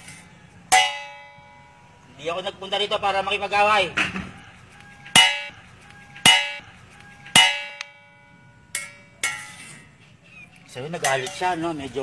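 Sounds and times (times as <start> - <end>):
metal bowl struck ringing: 5.1 - 5.6.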